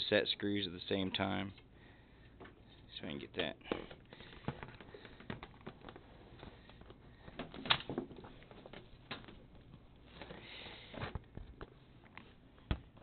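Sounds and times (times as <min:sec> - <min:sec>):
faint clicks and knocks of handling: 0:03.6 - 0:13.0.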